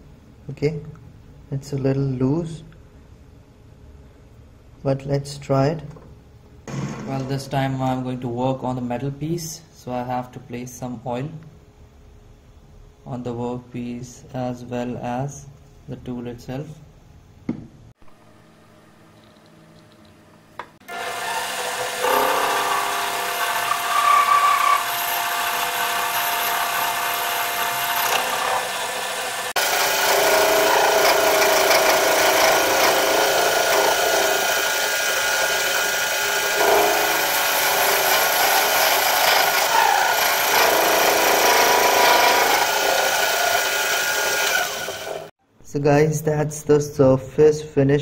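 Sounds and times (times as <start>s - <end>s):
lathe cutting metal: 20.8s - 45.3s
lathe whine: 20.8s - 45.3s.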